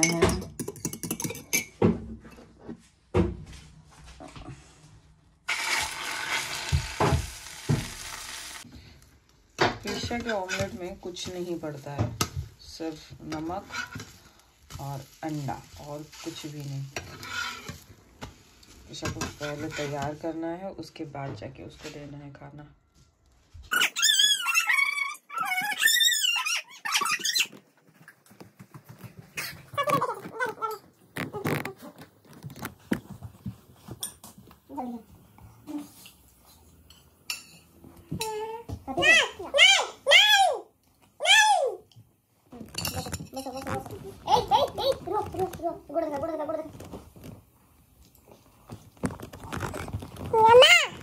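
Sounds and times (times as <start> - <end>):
egg sizzling in a pan: 5.5 - 8.7
dog whining: 23.7 - 27.5.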